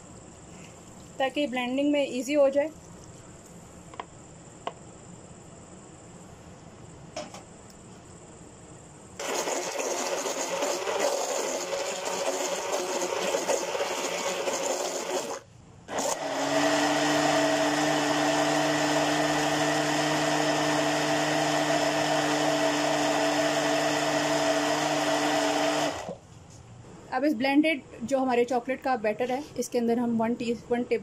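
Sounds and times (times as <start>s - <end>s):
blender whirring: 9.2s - 26.2s.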